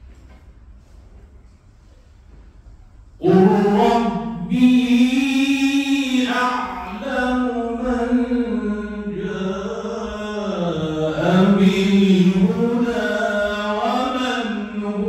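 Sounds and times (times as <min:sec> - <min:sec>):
man reciting melodically: 0:03.2 - 0:15.0.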